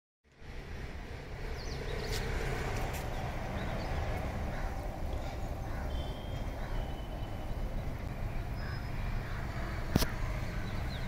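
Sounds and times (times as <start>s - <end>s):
faint bird chirps: 5.2s - 9.8s.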